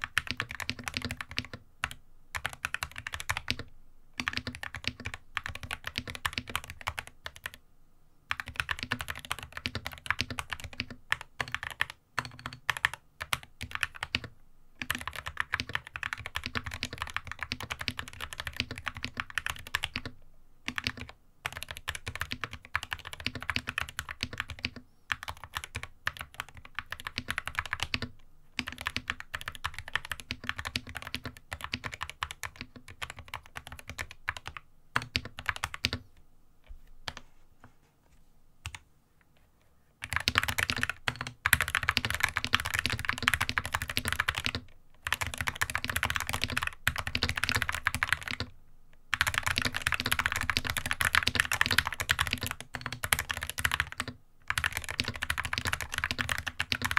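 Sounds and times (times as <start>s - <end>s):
mechanical keyboard typing: 0.0s - 7.6s, 8.3s - 36.0s, 40.0s - 48.5s, 49.1s - 56.9s.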